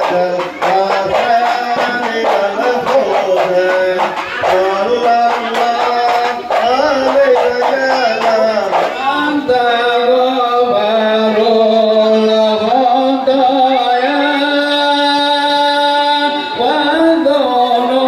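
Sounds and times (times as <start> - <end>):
drum strokes: 0.0 - 10.9
person singing long notes: 0.0 - 18.0.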